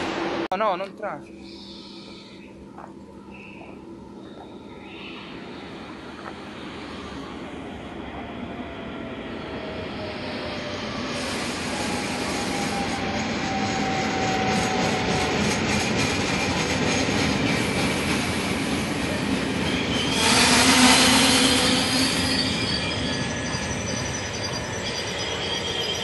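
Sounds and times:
train rolling on rails: 0.0s - 26.0s
high wheel squeal: 9.9s - 15.5s, 19.6s - 26.0s.

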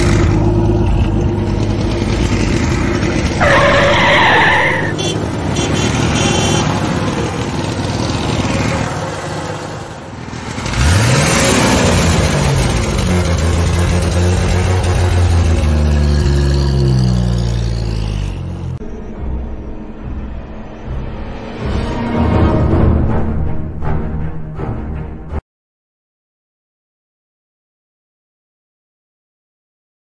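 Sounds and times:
engine revving: 0.0s - 20.2s
vehicle engine running: 0.0s - 20.3s
tyre screech: 3.3s - 5.2s.

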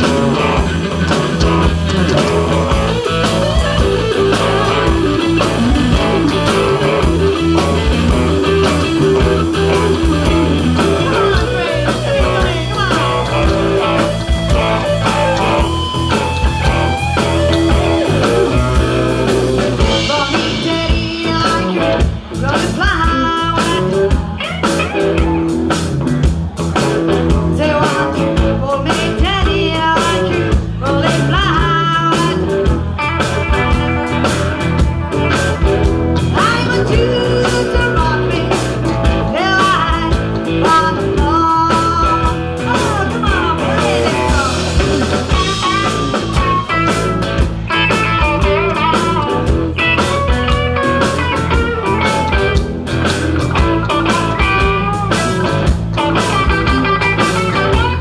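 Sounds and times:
live rock band playing: 0.0s - 58.0s
woman singing: 11.0s - 13.5s, 19.9s - 24.2s, 27.3s - 32.7s, 36.3s - 46.5s.

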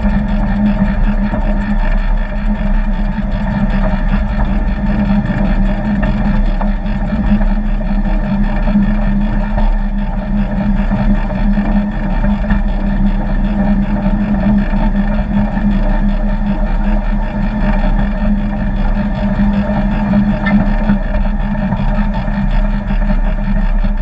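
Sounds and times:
miniature locomotive droning: 0.0s - 24.0s.

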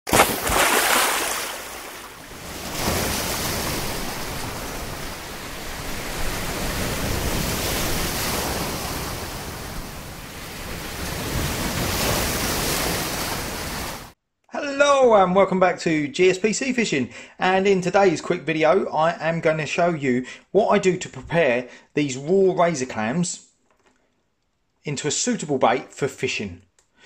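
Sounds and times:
waves breaking and washing in: 0.1s - 14.2s.

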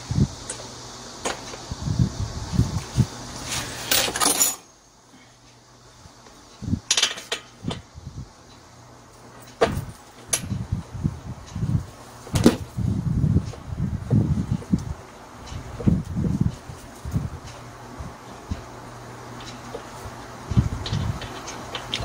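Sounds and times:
muffled handling noise: 19.3s - 22.0s.

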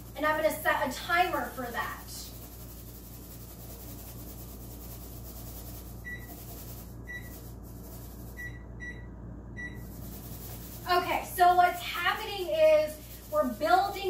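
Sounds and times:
steady low hum: 0.0s - 14.0s
microwave keypad beeps: 8.4s - 9.8s.

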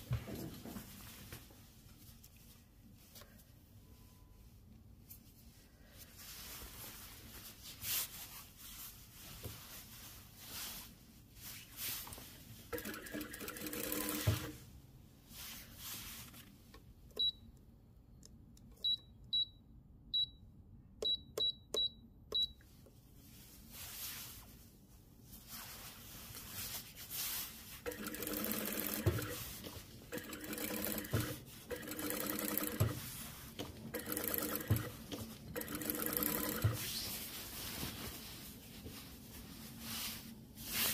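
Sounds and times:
jacket fabric rustling: 5.0s - 12.7s, 23.1s - 40.9s
sewing machine running: 12.7s - 14.6s, 27.8s - 33.2s, 33.9s - 36.8s.

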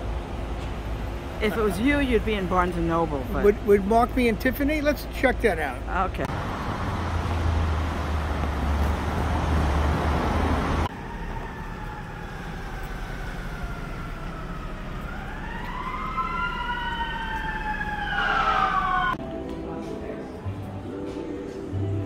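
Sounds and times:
street traffic noise: 0.0s - 22.0s
emergency siren wailing: 10.2s - 19.2s.

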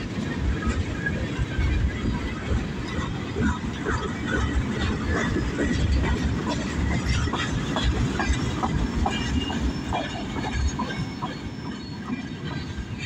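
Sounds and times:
freight train cars rolling: 0.0s - 13.0s
wheels clicking over rail joints: 0.0s - 13.0s.

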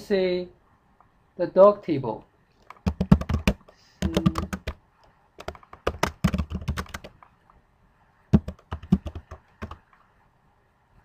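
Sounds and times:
computer keyboard typing: 2.6s - 4.8s, 5.4s - 7.2s, 8.3s - 9.9s.

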